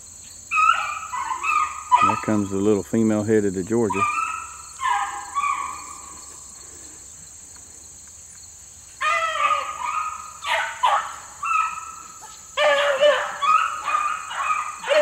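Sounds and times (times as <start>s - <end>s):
dogs baying: 0.5s - 2.8s, 3.7s - 6.8s, 9.0s - 15.0s.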